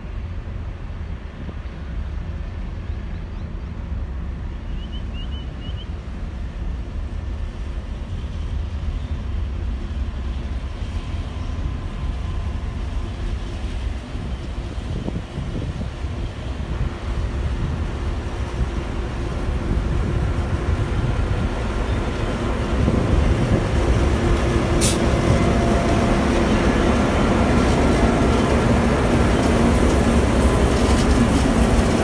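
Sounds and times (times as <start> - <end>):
diesel locomotive engine rumble: 0.0 - 32.0.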